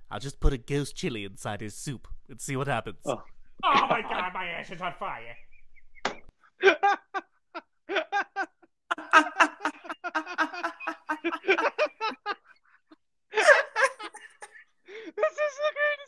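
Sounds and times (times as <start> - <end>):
person laughing hard: 6.6 - 16.0.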